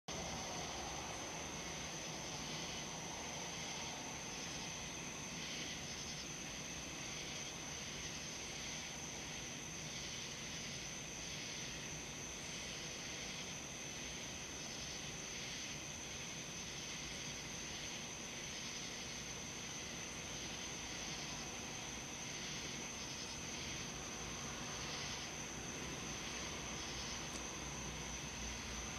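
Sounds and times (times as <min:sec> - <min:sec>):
faint hiss: 0:00.1 - 0:28.9
insects trilling: 0:00.1 - 0:28.9.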